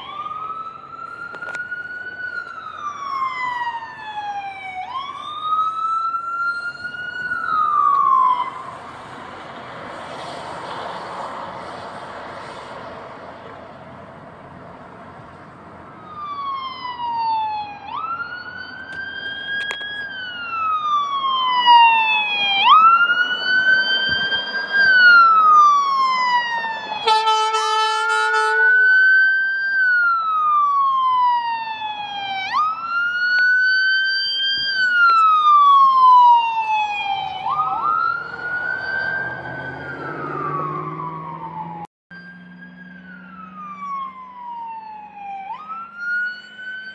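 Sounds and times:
siren wailing: 0.0 - 12.6, 15.6 - 46.9
horn blast: 27.0 - 28.8.

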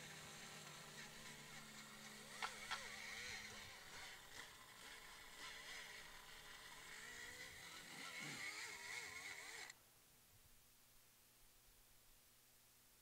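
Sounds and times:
die grinder grinding metal: 0.0 - 9.7.

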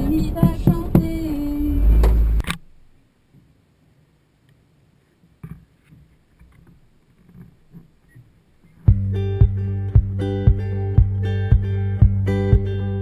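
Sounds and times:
faint soft knocks and rustles: 5.1 - 8.8.

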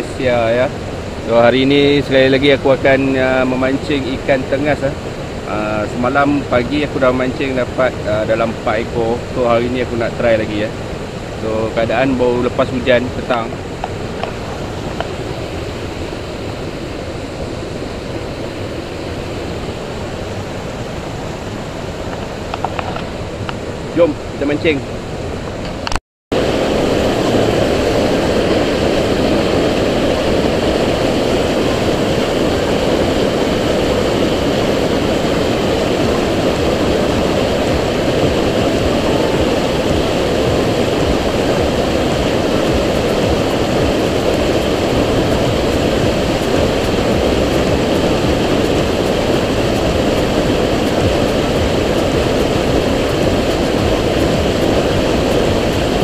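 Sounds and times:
stream rushing over cascade: 0.0 - 56.0.

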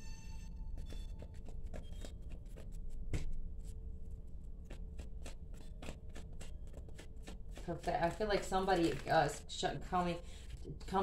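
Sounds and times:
cards being shuffled: 4.6 - 11.0.

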